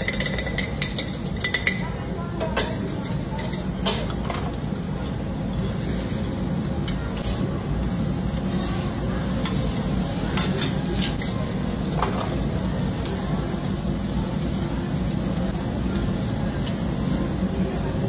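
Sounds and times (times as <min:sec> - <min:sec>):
beef sizzling on griddle: 0:02.7 - 0:18.0.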